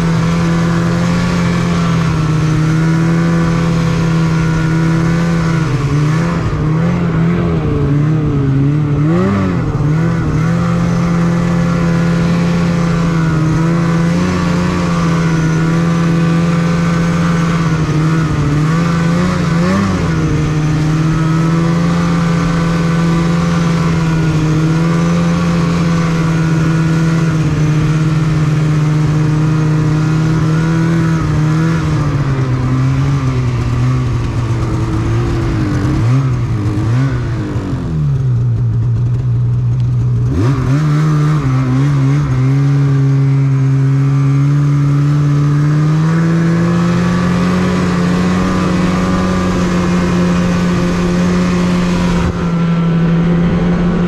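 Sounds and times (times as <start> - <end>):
snowmobile engine running: 0.0 - 54.0.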